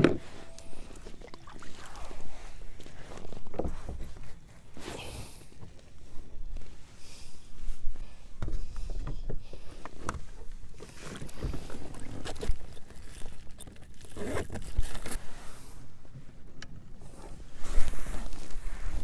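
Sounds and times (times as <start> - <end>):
water lapping against kayak hull: 0.2 - 3.1, 10.5 - 14.6.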